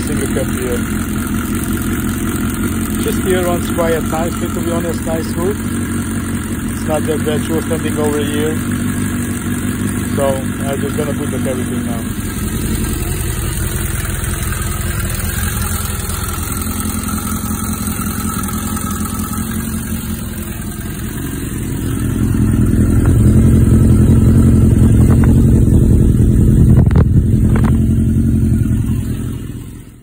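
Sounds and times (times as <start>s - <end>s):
motorcycle engine idling: 0.0s - 30.0s.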